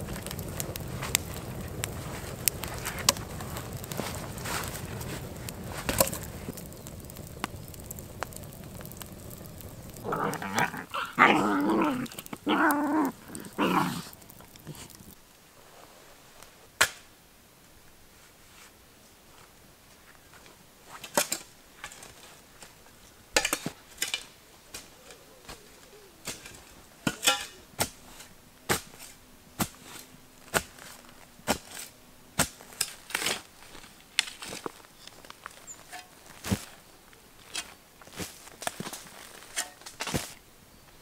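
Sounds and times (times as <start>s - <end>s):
shovel chopping and scraping soil: 26.2s - 33.5s, 35.7s - 36.8s, 37.4s - 40.4s.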